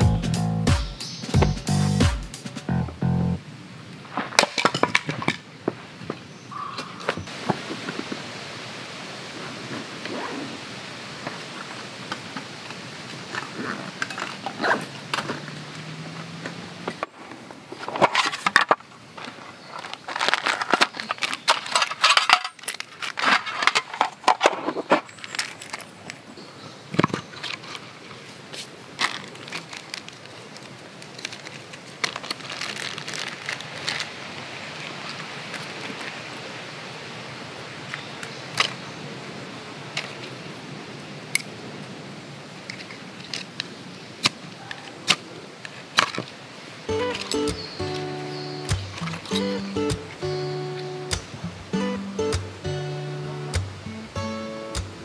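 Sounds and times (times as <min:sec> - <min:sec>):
metal tin contents clinking: 0:21.5 - 0:22.9
bag rustling: 0:31.2 - 0:34.1.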